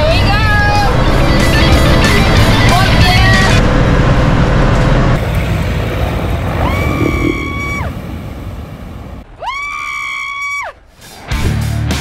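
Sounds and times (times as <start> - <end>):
vehicle engine running: 0.0 - 9.3.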